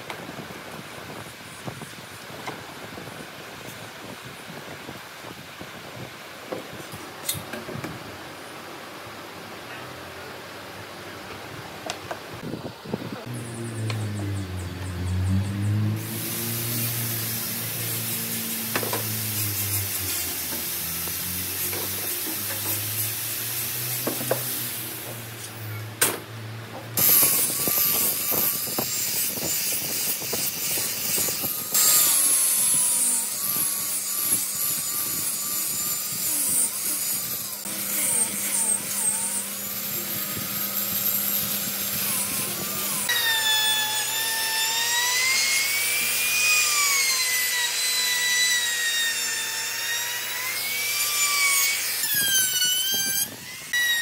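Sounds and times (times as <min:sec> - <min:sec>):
trim router whine: 0:11.8 - 0:26.2, 0:26.9 - 0:54.0
power sander on wood: 0:12.4 - 0:25.9, 0:27.0 - 0:54.0.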